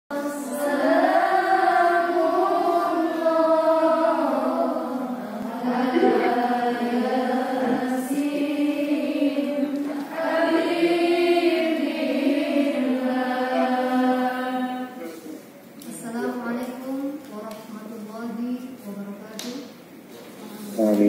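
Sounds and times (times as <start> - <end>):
melodic chanted singing: 0.2 - 15.0.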